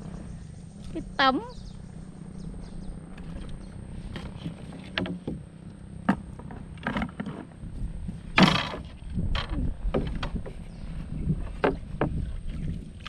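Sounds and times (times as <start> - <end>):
low rumble: 0.0 - 6.8, 7.5 - 13.0
water splashing around a boat: 3.2 - 13.0.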